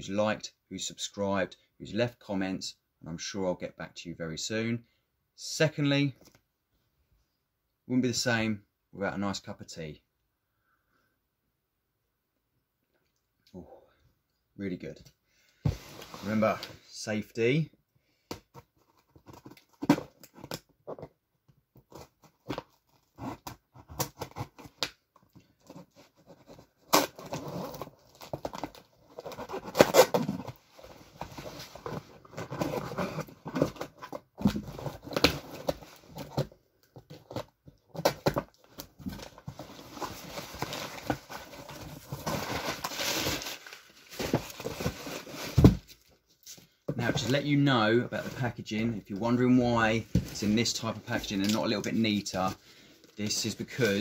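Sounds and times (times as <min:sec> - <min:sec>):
tape ripping: 0:26.8 - 0:30.6
packing paper rustling: 0:37.2 - 0:46.1.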